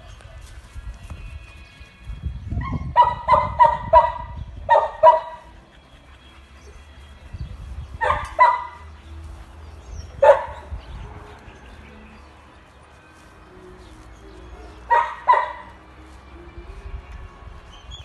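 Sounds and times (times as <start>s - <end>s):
dog barking: 2.7s - 5.5s, 8.0s - 8.8s, 10.2s - 10.7s, 14.6s - 15.8s.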